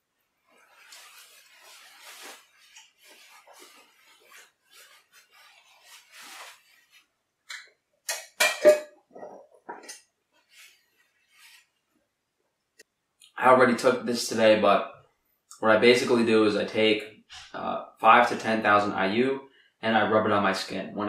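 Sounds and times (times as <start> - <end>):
paper towel rustling and crumpling: 0.1 - 7.3, 10.3 - 11.9.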